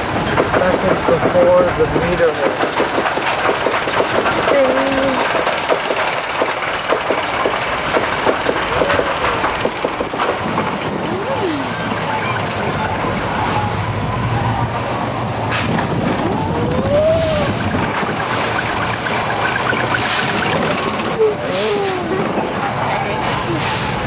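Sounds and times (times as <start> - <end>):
coaster car rolling on rails: 0.0 - 24.0
low steady rumble: 0.0 - 24.0
coaster chain clicking: 0.3 - 10.8, 17.5 - 21.4
wind on microphone: 14.6 - 19.0.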